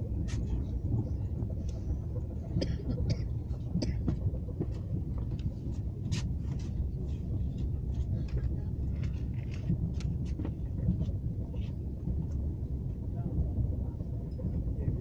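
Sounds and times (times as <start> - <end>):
train wheels rumbling on rail: 0.0 - 15.0
light clicks and rattles: 3.8 - 13.2.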